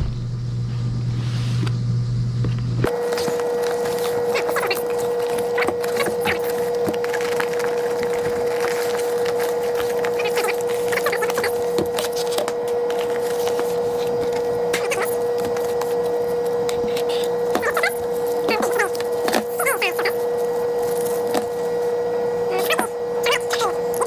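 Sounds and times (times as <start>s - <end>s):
steady hum: 0.0s - 24.0s
cardboard and plastic crinkling: 2.9s - 22.0s.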